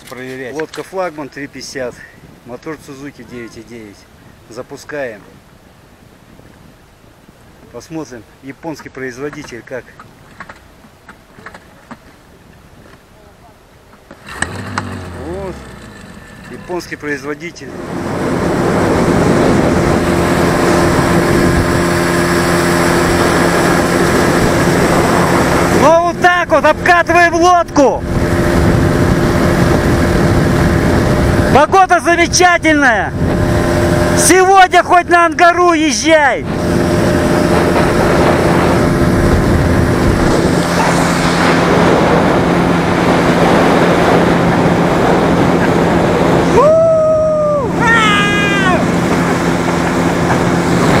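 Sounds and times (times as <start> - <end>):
rush of wind and water: 0.0 - 51.0
outboard motor running: 14.1 - 35.4, 36.0 - 51.0.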